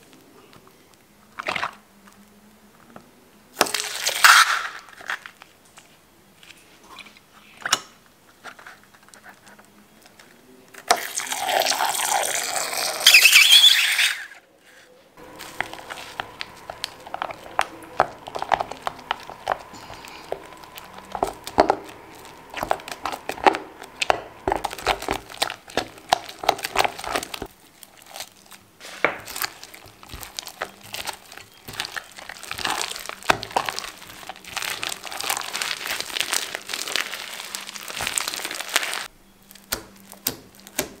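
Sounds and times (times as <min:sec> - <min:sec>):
slime squishing by hand: 0:14.6 - 0:41.0
slime stirred in glass bowl: 0:15.2 - 0:41.0.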